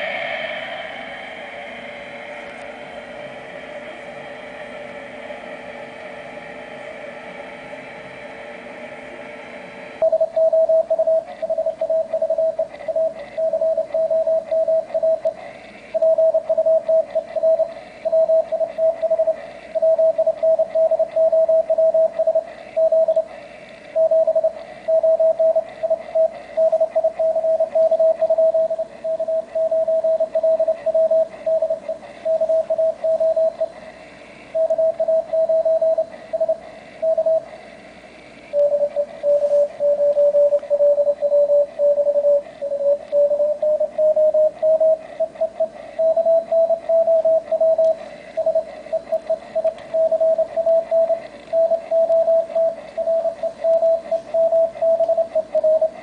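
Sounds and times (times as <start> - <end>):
morse code tone: 10.0 - 15.2, 38.6 - 56.0.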